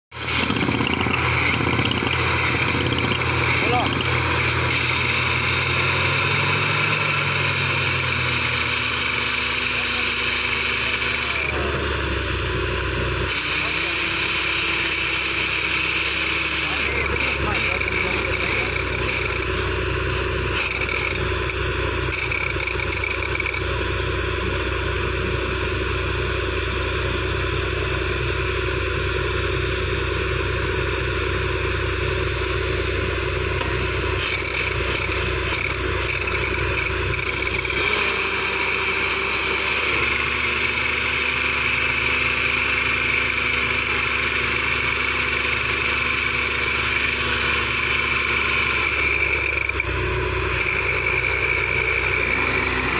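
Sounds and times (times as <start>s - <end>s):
drilling rig engine running: 0.1s - 52.9s.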